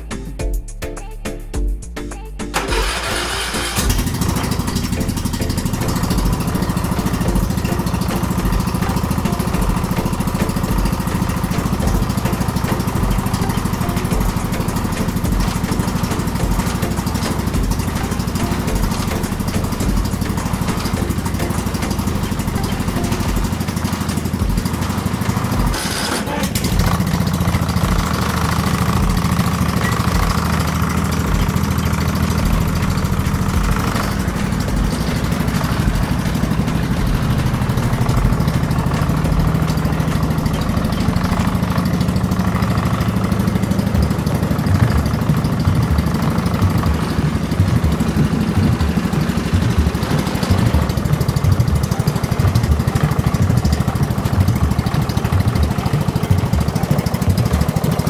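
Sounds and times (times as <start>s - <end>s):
mower engine running: 2.5s - 58.0s.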